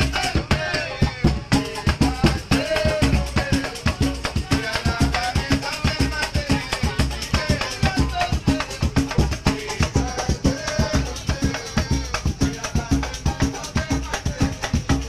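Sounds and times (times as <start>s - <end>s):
people singing: 0.0s - 15.0s
samba percussion: 0.0s - 15.0s.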